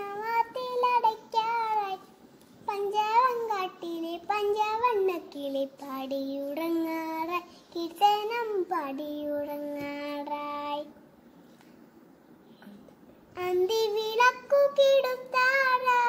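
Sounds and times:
girl singing unaccompanied: 0:00.0 - 0:11.2, 0:13.3 - 0:16.0.

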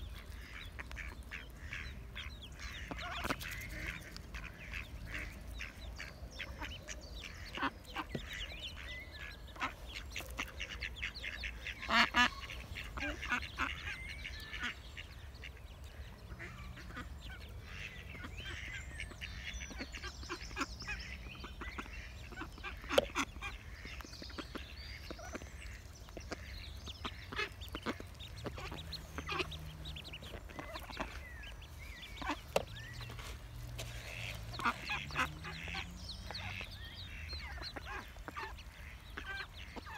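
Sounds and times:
ducks calling: 0:00.0 - 0:39.9
bills pecking seed: 0:00.1 - 0:15.1, 0:20.9 - 0:39.9.

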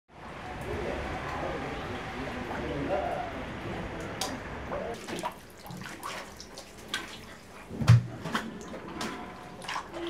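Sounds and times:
floodwater splashing: 0:04.9 - 0:10.0.

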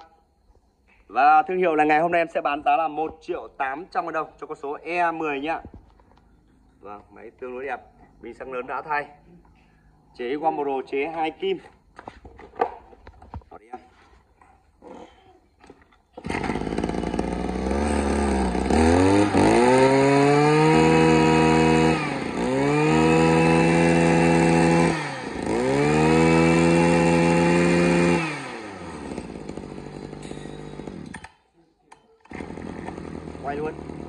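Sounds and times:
brush cutter engine revving: 0:16.2 - 0:34.0.

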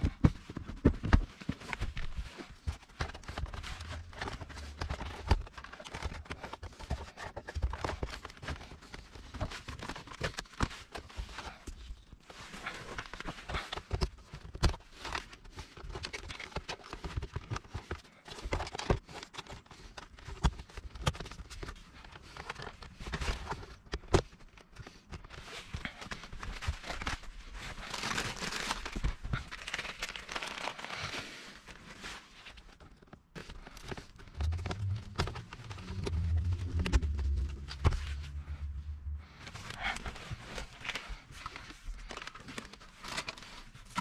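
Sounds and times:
rustling wiring: 0:33.4 - 0:44.0
low hum: 0:34.2 - 0:41.0.

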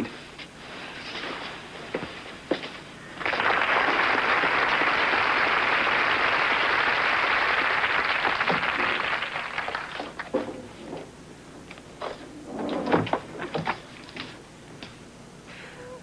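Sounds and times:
studio audience applauding: 0:03.1 - 0:10.3.

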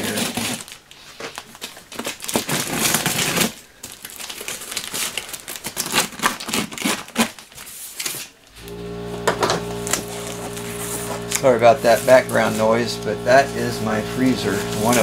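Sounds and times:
plastic wrap and tape tearing: 0:00.0 - 0:08.5.

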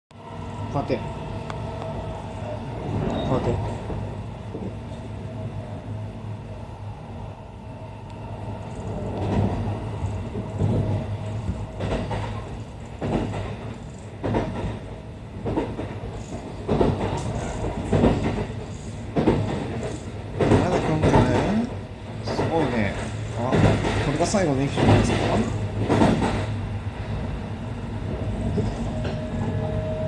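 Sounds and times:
train low hum: 0:00.1 - 0:30.0
wheels clacking over rail joints: 0:08.8 - 0:26.6.

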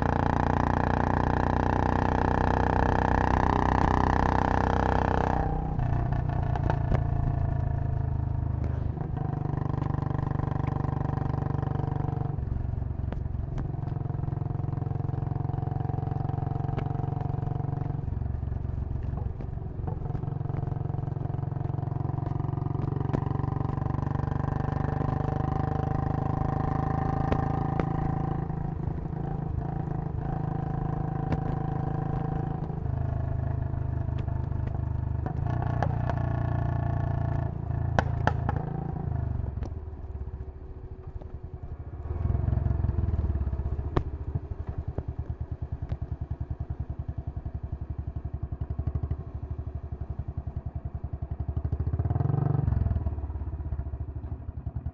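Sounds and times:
motorcycle engine running: 0:00.0 - 0:54.9.

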